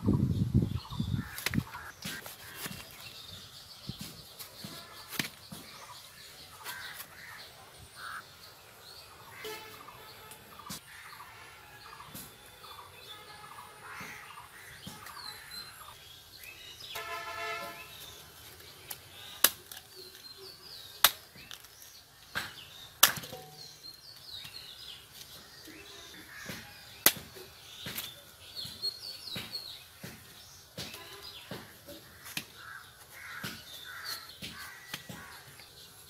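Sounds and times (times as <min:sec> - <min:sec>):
small birds chirping: 0:00.0 - 0:36.0.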